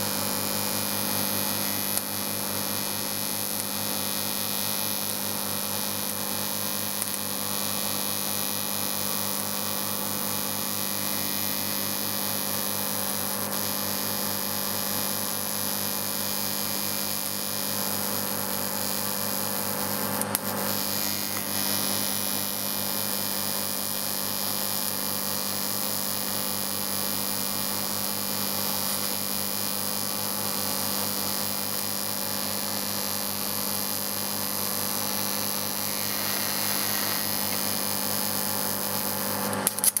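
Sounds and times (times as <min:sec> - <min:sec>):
welding arc buzzing and hissing: 0:00.0 - 0:40.0
sharp click: 0:20.2 - 0:20.5, 0:39.4 - 0:40.0.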